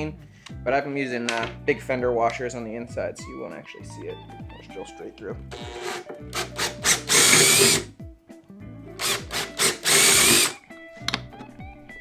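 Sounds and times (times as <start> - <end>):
power drill boring through wood: 5.5 - 7.9, 9.0 - 10.6.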